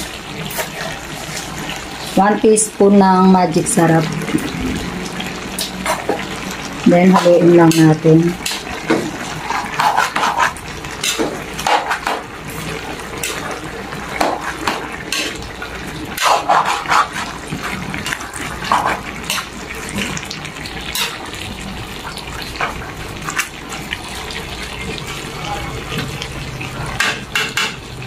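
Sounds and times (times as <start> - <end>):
metal utensil scraping a wok: 7.0 - 15.5, 16.1 - 19.6, 20.9 - 21.2.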